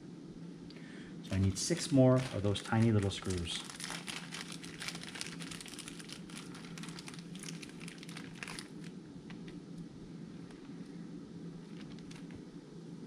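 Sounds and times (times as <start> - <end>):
plastic bag crinkling: 1.3 - 9.4.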